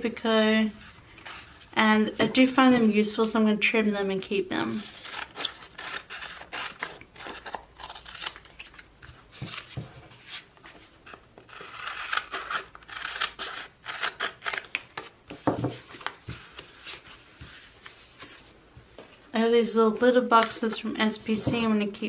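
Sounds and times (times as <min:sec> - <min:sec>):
scissors cutting paper: 0:04.8 - 0:08.8, 0:11.1 - 0:15.1.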